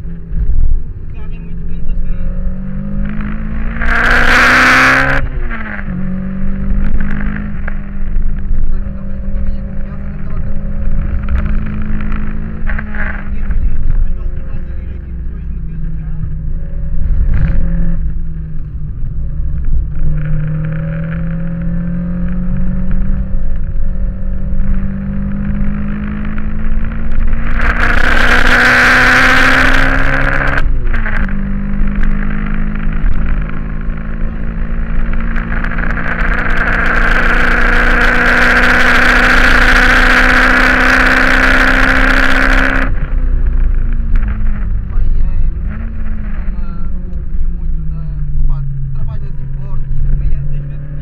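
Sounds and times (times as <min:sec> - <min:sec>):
car engine at full throttle: 0:00.0 - 0:51.0.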